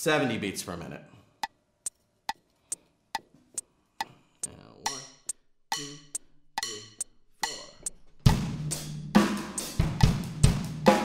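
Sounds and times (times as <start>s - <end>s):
electronic metronome clicking: 4.4s - 8.0s
drum fill: 4.4s - 11.0s.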